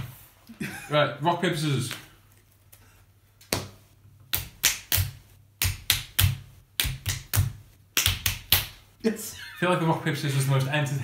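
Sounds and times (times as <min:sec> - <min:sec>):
hands slapping: 0:03.4 - 0:08.8.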